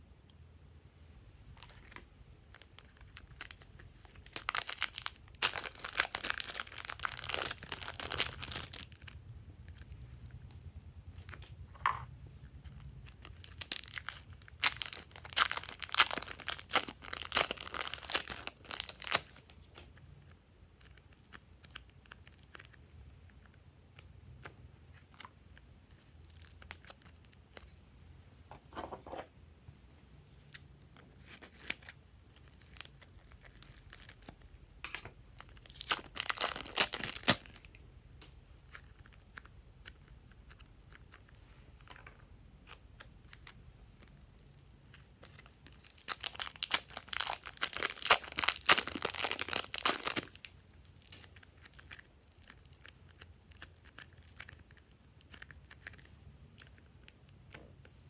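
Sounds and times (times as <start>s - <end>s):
plastic bag crinkling: 1.6s - 10.0s, 13.1s - 19.6s, 31.2s - 34.5s, 35.4s - 37.8s, 44.1s - 56.7s.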